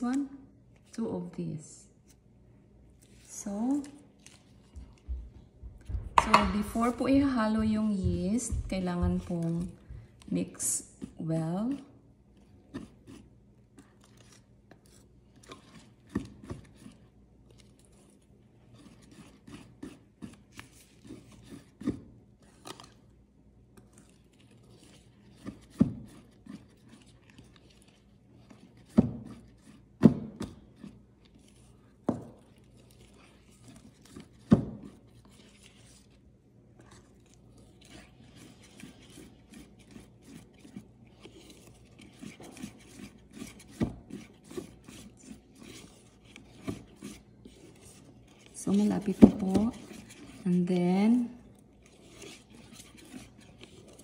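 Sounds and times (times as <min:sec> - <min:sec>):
utensil scraping mixing bowl: 0:05.8 - 0:23.0, 0:23.8 - 0:54.0
utensil knocking bowl side: 0:05.9 - 0:09.3.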